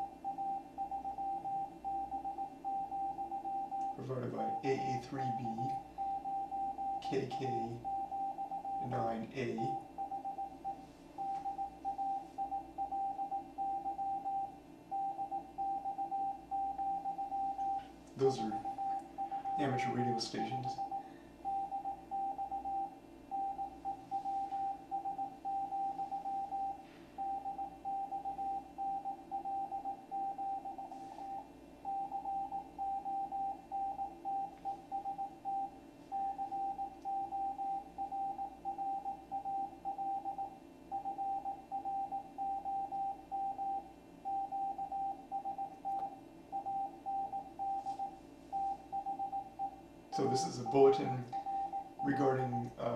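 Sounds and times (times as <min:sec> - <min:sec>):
morse code beeps: 0:00.0 - 0:52.9
low radio noise: 0:03.8 - 0:06.0, 0:06.9 - 0:07.9, 0:17.5 - 0:21.0, 0:50.1 - 0:52.9.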